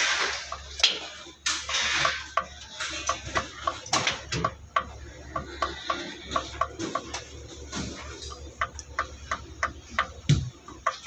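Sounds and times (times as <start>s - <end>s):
metal scraping: 0.0s - 3.7s.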